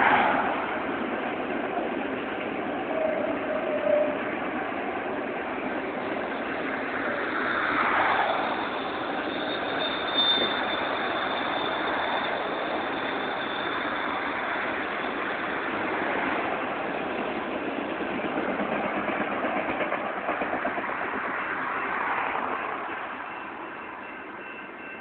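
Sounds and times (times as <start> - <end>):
train wheels rushing on rail: 0.0 - 25.0
high-pitched wheel squeal: 2.8 - 4.3, 6.2 - 16.3.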